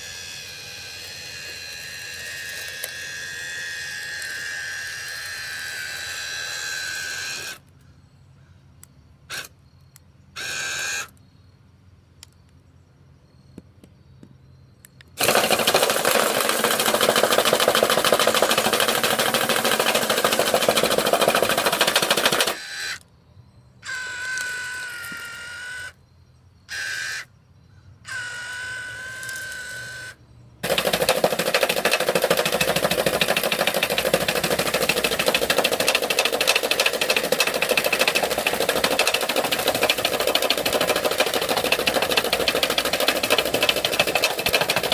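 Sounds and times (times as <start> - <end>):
electric motor whining: 0.0 - 7.6
loud rapid rattling: 15.2 - 22.6, 30.6 - 44.9.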